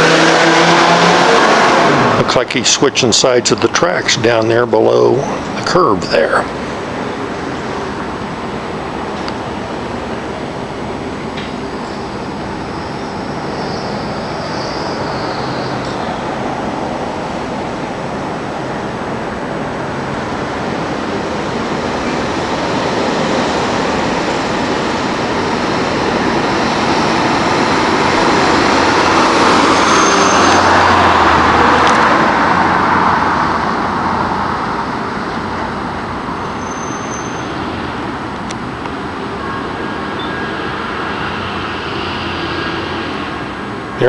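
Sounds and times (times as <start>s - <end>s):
car driving past: 0.0s - 3.1s, 26.0s - 34.1s
road traffic noise: 0.0s - 44.0s.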